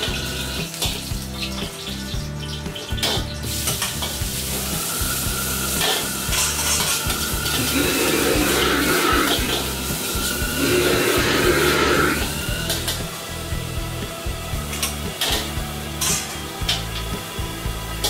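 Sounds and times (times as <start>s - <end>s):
food sizzling in hot oil: 0.0s - 18.0s
metal ladle scraping a wok: 3.5s - 13.0s.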